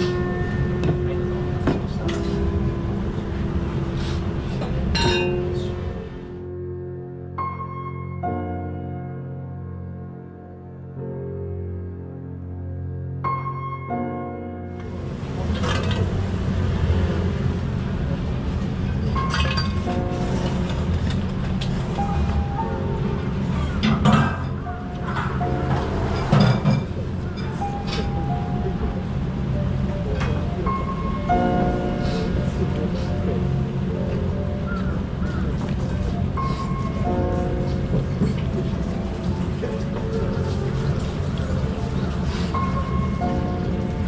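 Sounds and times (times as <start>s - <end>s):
low rumble of shop noise: 0.0s - 7.1s, 14.7s - 44.0s
soft background music: 0.0s - 44.0s
bowls and utensils clinking: 4.9s - 5.7s, 19.0s - 20.6s.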